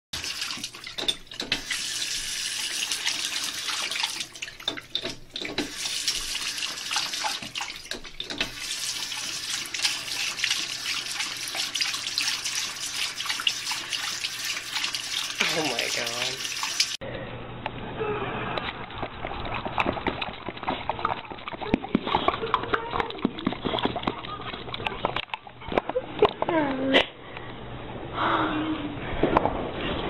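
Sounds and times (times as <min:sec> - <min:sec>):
faucet water splashing in sink: 0:00.2 - 0:17.0.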